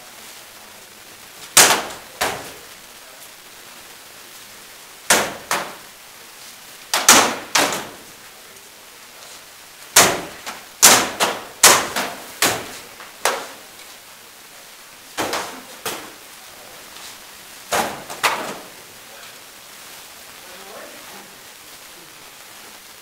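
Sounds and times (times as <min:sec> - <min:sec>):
sword blows cracking on shields: 0:01.6 - 0:02.6, 0:05.1 - 0:05.8, 0:06.9 - 0:08.0, 0:10.0 - 0:13.6, 0:15.2 - 0:16.2, 0:17.7 - 0:18.7.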